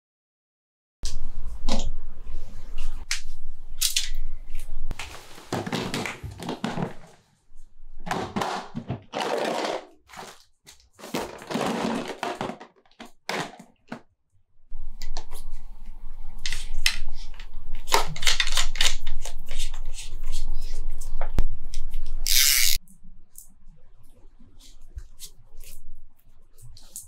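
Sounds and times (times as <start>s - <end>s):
items rattling in plastic box: 5.5s - 7.2s, 8.1s - 14.0s.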